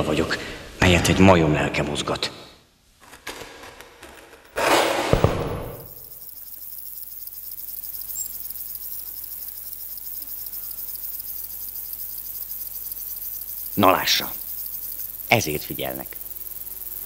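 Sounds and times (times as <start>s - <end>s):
sharp knock: 4.6s - 6.0s
insects chirring: 5.1s - 17.0s.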